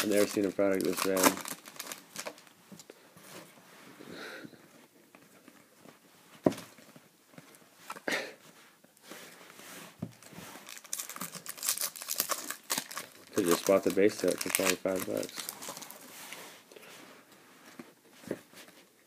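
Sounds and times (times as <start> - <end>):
foil wrapper crinkling: 0.0 - 2.5, 10.6 - 16.1.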